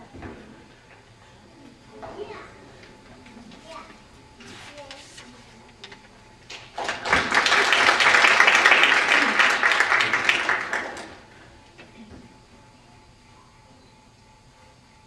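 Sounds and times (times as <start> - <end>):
audience applauding: 6.5 - 11.3.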